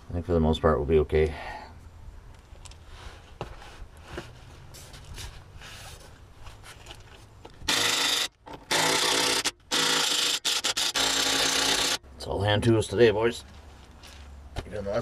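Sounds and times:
wrench running on nut: 7.7 - 12.0.

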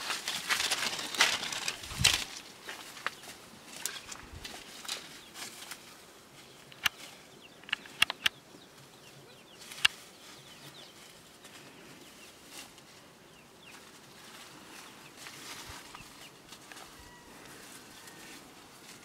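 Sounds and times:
sharp clicks: 6.7 - 7.0, 7.6 - 8.4, 9.8 - 10.0.

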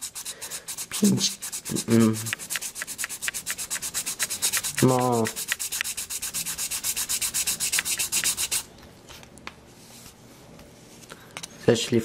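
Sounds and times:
sandpaper rubbing on plastic: 0.0 - 8.7.

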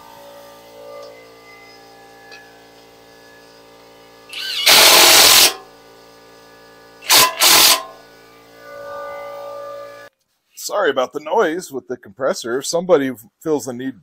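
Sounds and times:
impact wrench bursts: 4.3 - 5.7, 7.0 - 8.0.

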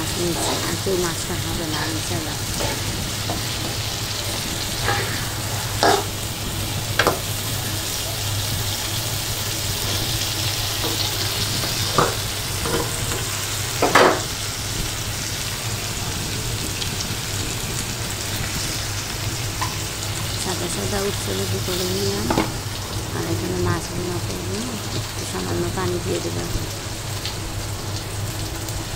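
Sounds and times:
spatula scraping a pan: 0.0 - 8.0
fish sizzling in a pan: 0.0 - 28.9.

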